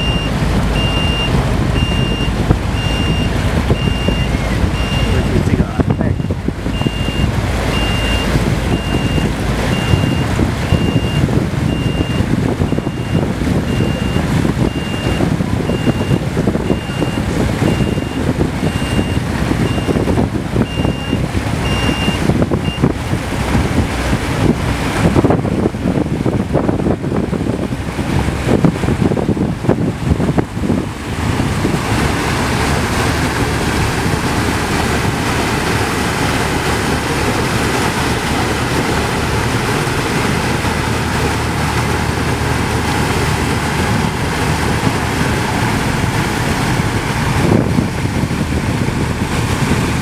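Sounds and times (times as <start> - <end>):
high electronic beeps: 0.0 - 5.3
boat engine running: 0.0 - 50.0
rushing water: 0.0 - 50.0
wind: 0.0 - 50.0.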